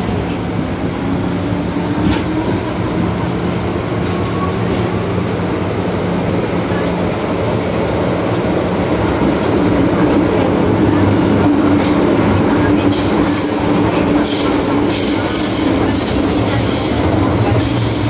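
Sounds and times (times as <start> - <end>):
metro train motors and wheels drone: 0.0 - 18.0.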